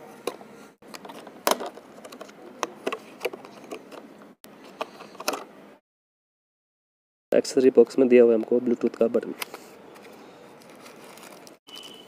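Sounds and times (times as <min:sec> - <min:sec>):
plastic packaging crinkling: 0:10.5 - 0:12.0.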